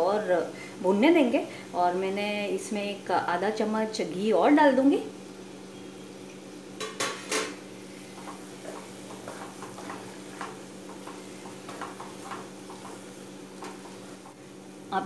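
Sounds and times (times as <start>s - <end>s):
spatula scraping a pan: 8.1s - 14.4s.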